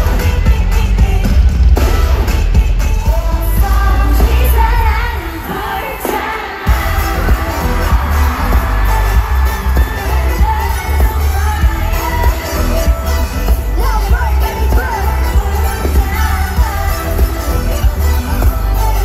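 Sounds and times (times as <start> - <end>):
loud singing: 0.0 - 19.0
pop concert music with heavy bass: 0.0 - 19.0.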